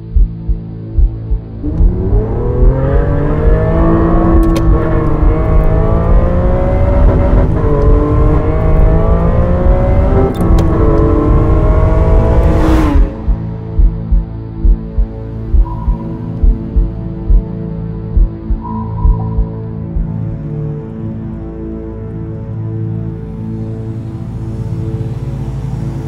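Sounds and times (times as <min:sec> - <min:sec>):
slow thumping pulse: 0:00.0 - 0:20.4
sports car engine accelerating: 0:01.4 - 0:14.8, 0:15.5 - 0:17.4
car passing whoosh: 0:01.7 - 0:13.6.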